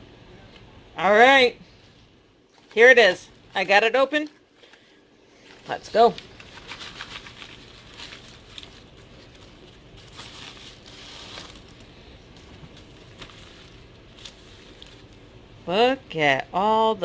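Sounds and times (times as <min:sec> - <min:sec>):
seed packets crinkling: 0:02.5 - 0:15.2.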